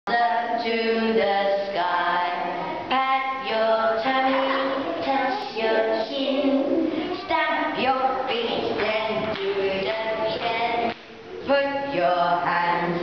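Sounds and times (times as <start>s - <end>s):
women and children singing: 0.1s - 13.0s.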